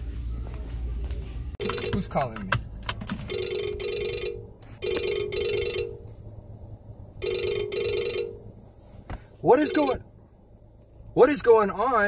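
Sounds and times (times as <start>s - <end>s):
phone ringtone: 1.6s - 2.2s, 3.3s - 6.1s, 7.2s - 8.5s, 9.6s - 10.0s.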